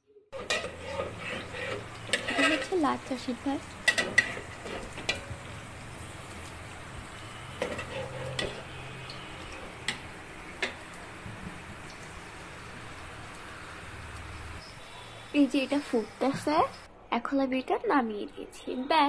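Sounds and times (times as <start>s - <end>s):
ladle stirring in pot: 0.4s - 6.6s, 7.5s - 11.0s.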